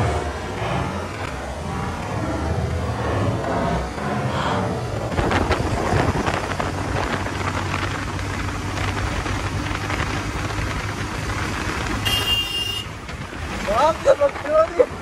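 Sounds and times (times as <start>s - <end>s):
wind rushing over microphone: 0.0s - 12.2s
vehicle engine running: 0.0s - 15.0s.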